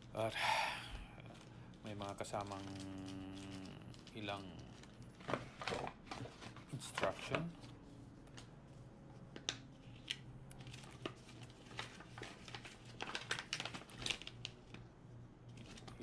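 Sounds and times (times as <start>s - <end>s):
plastic pouch crinkling: 1.3s - 7.6s, 9.4s - 14.9s, 15.5s - 16.0s.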